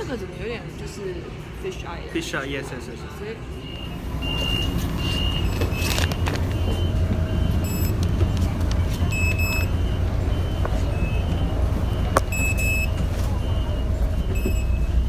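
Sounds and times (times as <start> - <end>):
bus engine rumble: 0.0 - 15.0
card reader electronic beeps: 3.6 - 15.0.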